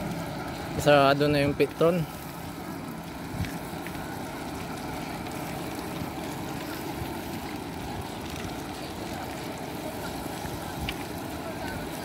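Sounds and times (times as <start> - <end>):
motorcycle riding along a road: 0.0 - 12.0.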